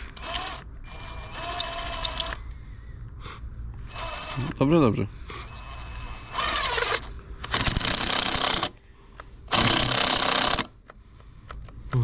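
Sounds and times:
power screwdriver driving screws: 0:00.2 - 0:02.4, 0:03.9 - 0:04.5, 0:05.5 - 0:08.7, 0:09.5 - 0:10.7.

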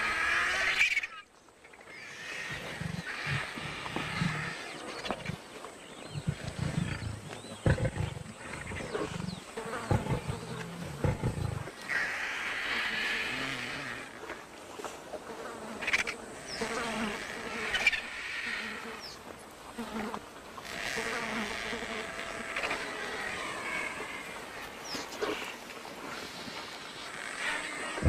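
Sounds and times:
insects buzzing: 0:00.0 - 0:28.0
lions growling: 0:02.5 - 0:14.1.

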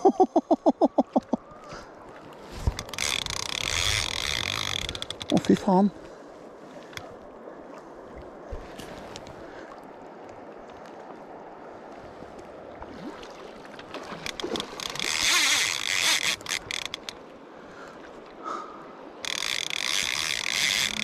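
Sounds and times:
river water rushing: 0:01.6 - 0:21.0
fishing reel drag buzzing: 0:02.8 - 0:05.4, 0:14.8 - 0:17.1, 0:19.2 - 0:21.0.

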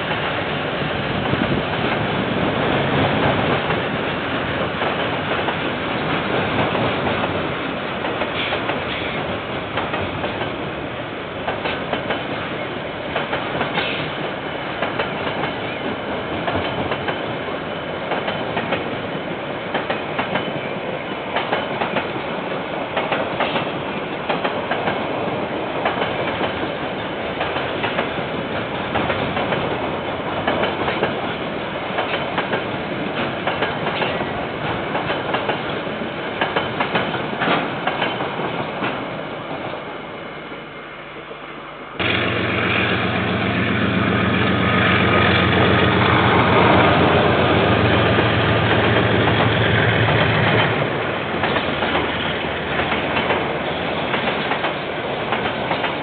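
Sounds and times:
train wheels clattering over rails: 0:00.0 - 0:10.7, 0:11.4 - 0:39.8, 0:42.0 - 0:56.0
diesel locomotive engine running: 0:41.9 - 0:55.7.

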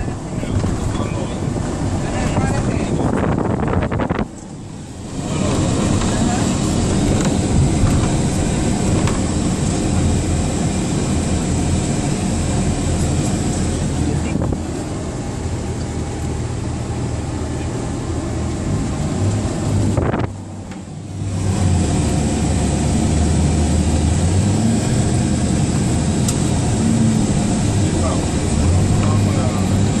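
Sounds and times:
wind noise on microphone: 0:00.0 - 0:11.2, 0:14.2 - 0:14.8, 0:18.6 - 0:20.6
road and engine rumble: 0:00.0 - 0:30.0.

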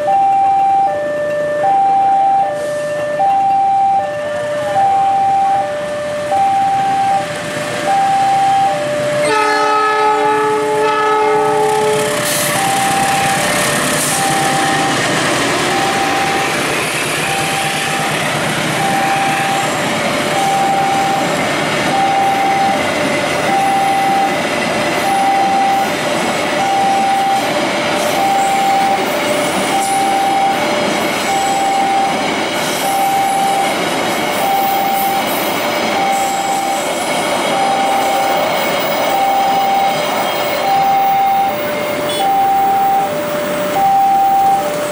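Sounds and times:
two-tone crossing alarm beeping: 0:00.0 - 0:44.9
locomotive horn blast: 0:08.5 - 0:21.3, 0:40.2 - 0:43.0
train wheels clattering on rails: 0:11.4 - 0:43.8.

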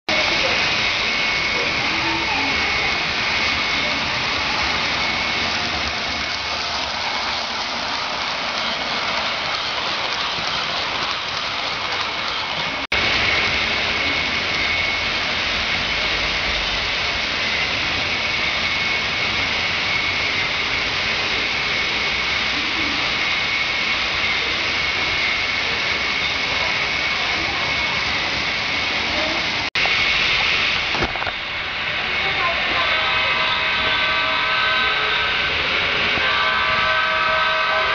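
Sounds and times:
model trains rolling: 0:00.1 - 0:37.9
faint high whine: 0:12.3 - 0:37.9.

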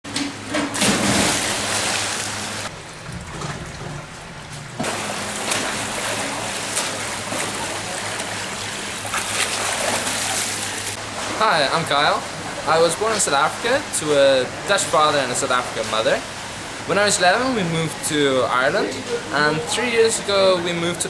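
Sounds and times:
water splashing in a pool: 0:00.5 - 0:12.7.

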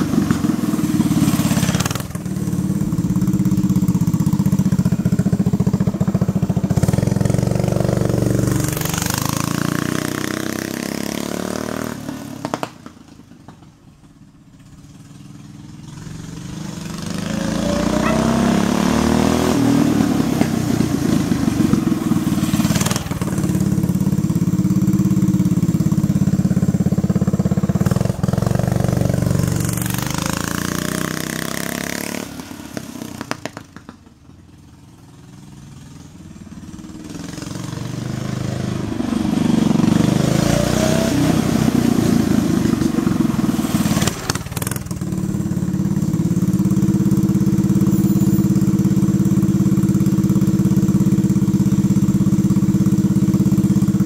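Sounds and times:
small engine revving: 0:15.8 - 0:23.7.

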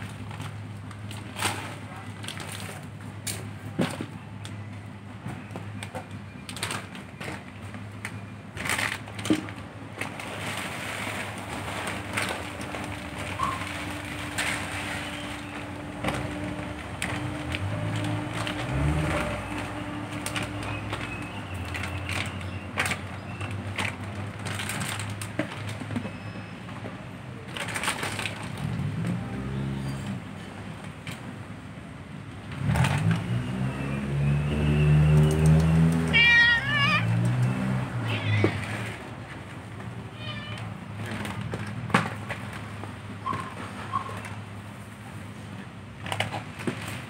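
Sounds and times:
plastic bag crinkling: 0:10.0 - 0:23.0.

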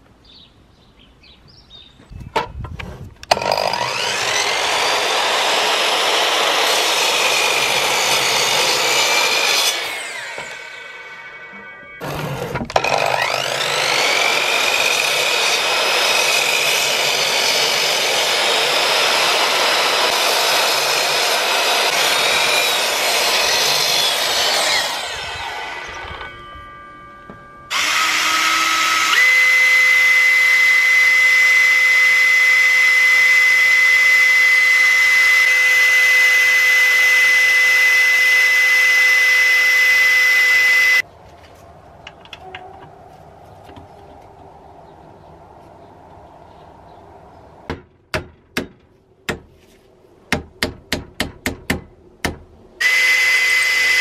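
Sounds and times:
drill whining: 0:03.2 - 0:41.0, 0:52.8 - 0:54.0
electric saw whining and cutting: 0:03.2 - 0:41.1, 0:52.8 - 0:54.0.

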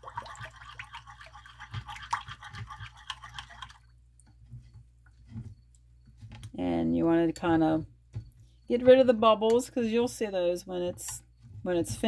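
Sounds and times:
metal spoon stirring in bowl: 0:00.4 - 0:03.8.

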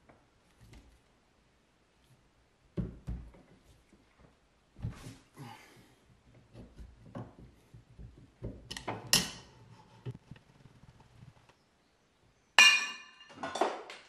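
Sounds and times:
sharp metal clank: 0:12.6 - 0:13.4
metal knocks and handling: 0:12.6 - 0:14.0.

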